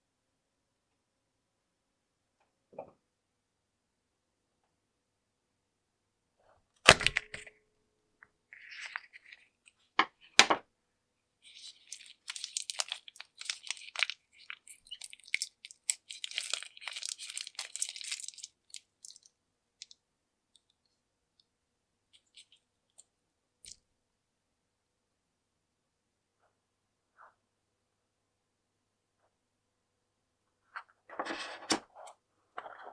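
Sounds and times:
sticky latex crackling: 11.4s - 20.0s.

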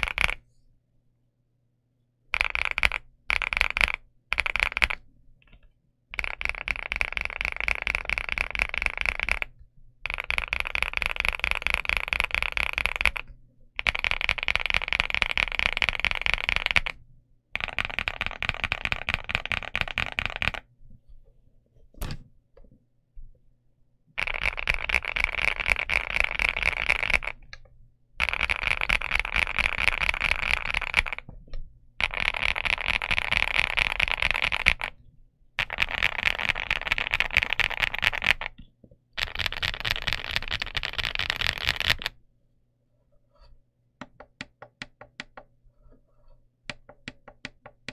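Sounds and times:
mechanical keyboard typing: 2.4s - 5.6s, 6.2s - 17.0s, 17.6s - 20.7s, 24.2s - 27.6s, 28.2s - 31.3s, 32.0s - 35.0s, 35.6s - 38.6s, 39.2s - 42.2s.

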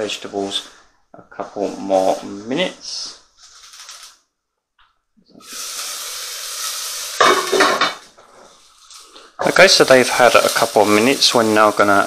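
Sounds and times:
vegetables sizzling in a pan: 3.4s - 4.2s, 5.3s - 12.0s.

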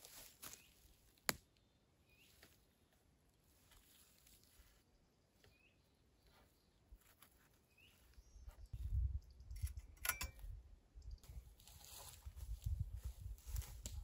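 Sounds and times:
small bird chirping: 4.6s - 10.3s, 10.9s - 11.3s.

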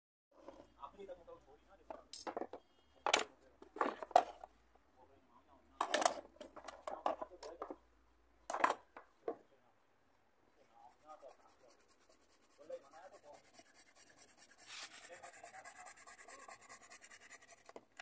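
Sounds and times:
hard plastic knocks and clattering: 8.5s - 9.4s.

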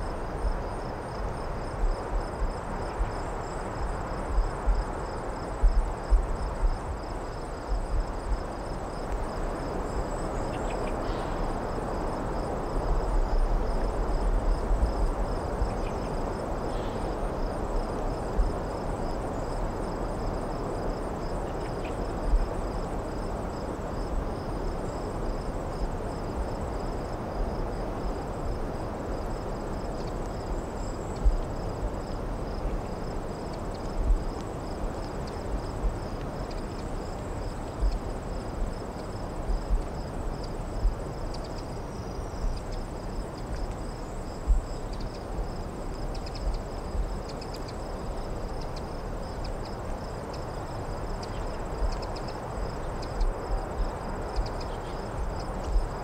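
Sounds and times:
crickets chirping: 0.0s - 56.0s.

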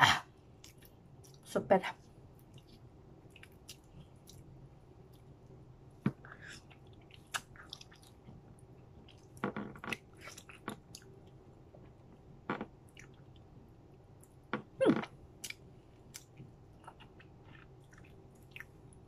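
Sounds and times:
person chewing wet mouth smacks: 6.0s - 8.2s.

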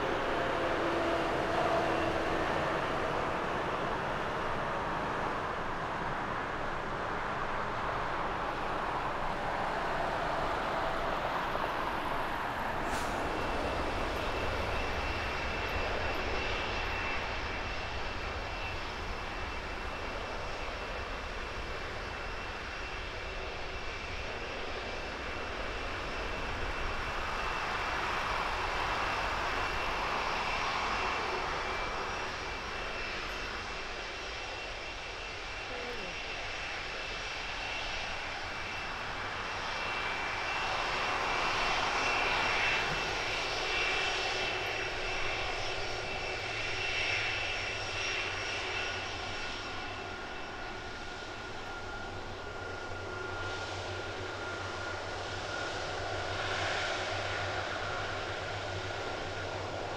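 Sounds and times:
jet engines rumble and whine: 0.0s - 59.9s
landing jet noise: 0.0s - 59.9s.

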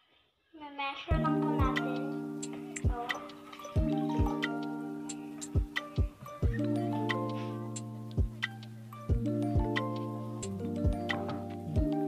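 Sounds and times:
music with sustained chords: 1.1s - 12.0s
kick drum hit: 8.2s - 8.4s.

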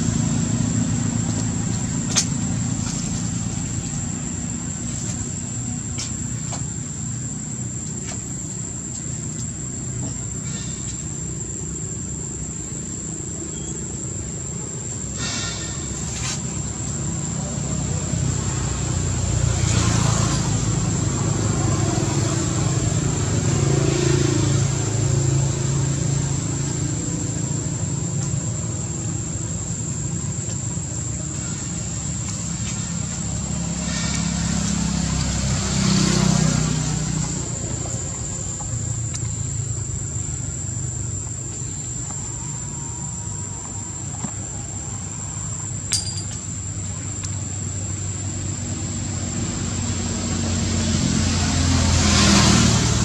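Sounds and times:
vehicle engine humming: 0.0s - 53.0s.

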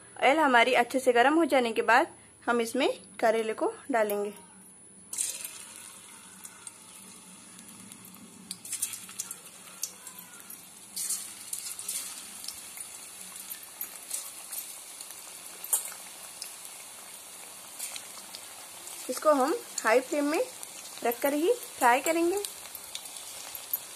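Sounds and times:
food deep-frying in oil: 5.1s - 23.9s
oil crackling and spitting: 5.1s - 23.9s.

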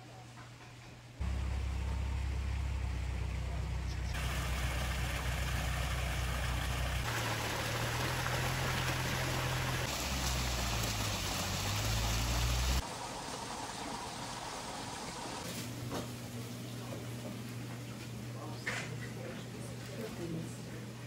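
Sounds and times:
water splashing down waterfall: 4.2s - 15.4s.

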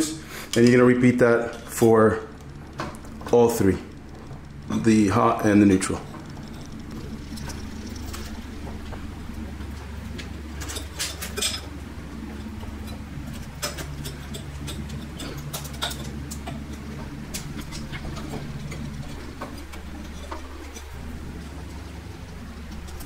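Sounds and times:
low hum: 0.0s - 23.0s
clicks of twisting wire nuts: 1.5s - 9.2s, 12.7s - 23.0s.

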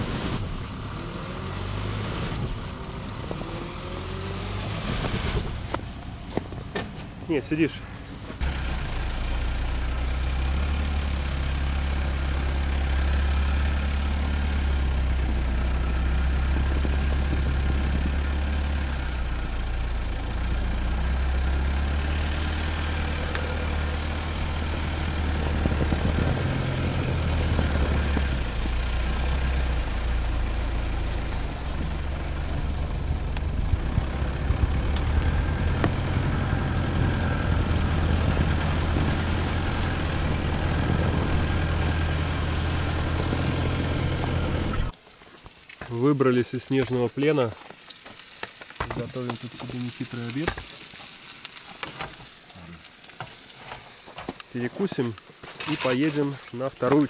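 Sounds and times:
tyres in snow: 0.0s - 57.0s
diesel engine running: 7.3s - 45.0s.

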